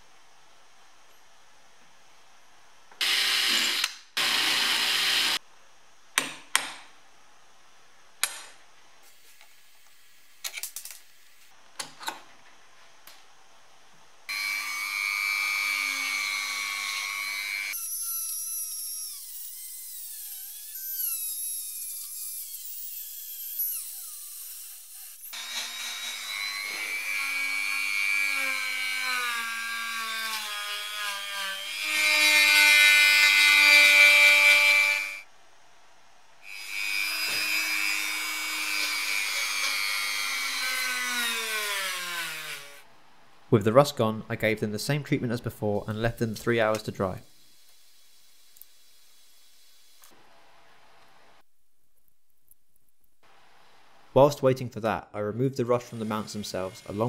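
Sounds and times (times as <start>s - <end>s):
cordless drill drilling: 3.0s - 5.4s
rotary tool whining: 14.3s - 27.9s.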